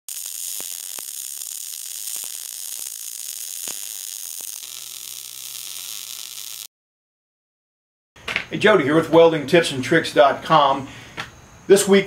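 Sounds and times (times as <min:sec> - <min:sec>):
welding arc hissing and popping: 0:00.1 - 0:06.7.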